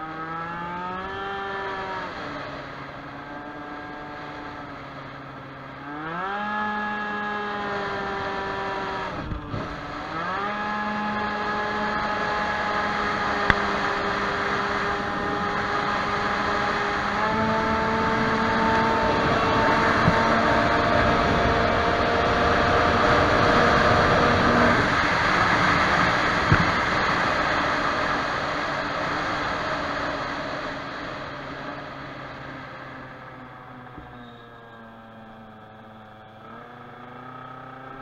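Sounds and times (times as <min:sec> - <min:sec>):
scooter engine at full throttle: 0:00.0 - 0:38.0
wind rush: 0:17.6 - 0:31.5.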